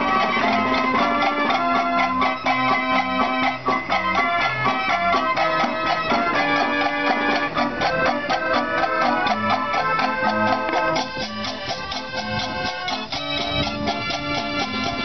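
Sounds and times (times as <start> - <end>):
organ percussion beat: 0.0 - 15.0
street organ playing dance music: 0.0 - 15.0.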